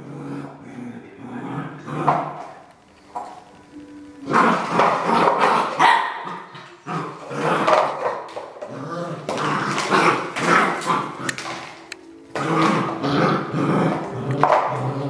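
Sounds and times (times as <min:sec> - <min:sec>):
dog barking: 0:04.4 - 0:06.5.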